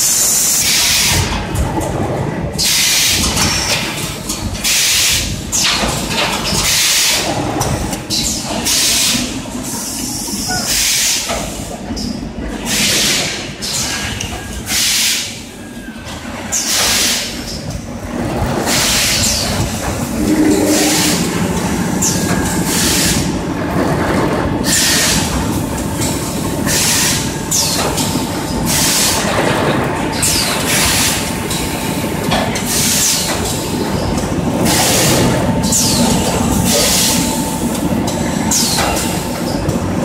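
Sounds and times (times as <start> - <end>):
faint high hum: 19.9 - 22.8.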